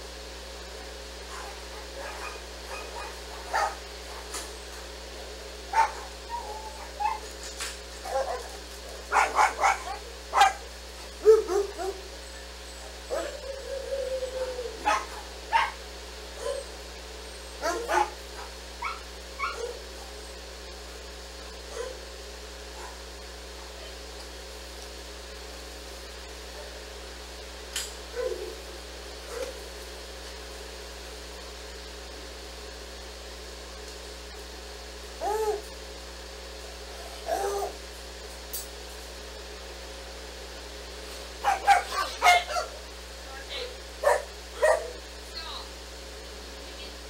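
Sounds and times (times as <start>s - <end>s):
dogs barking and yipping: 1.3s - 4.4s, 5.7s - 16.8s, 17.4s - 20.2s, 21.7s - 22.1s, 22.7s - 23.1s, 29.3s - 29.6s, 41.4s - 42.9s, 44.0s - 45.0s
dog whining: 5.7s - 7.3s, 11.2s - 15.7s, 18.8s - 20.2s, 28.1s - 28.6s, 35.2s - 35.7s, 37.0s - 37.8s.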